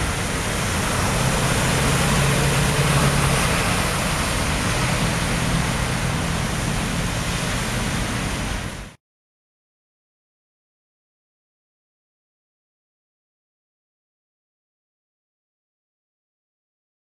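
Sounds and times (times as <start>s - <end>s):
low hum of car engines: 0.0s - 9.0s
water spraying off tyres: 0.0s - 9.0s.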